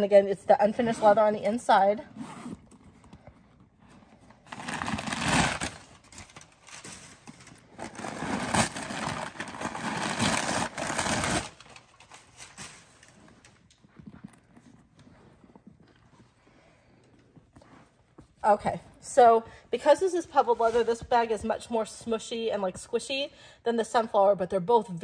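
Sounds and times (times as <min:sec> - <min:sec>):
leather bag rustling and rubbing: 0:00.9 - 0:11.5.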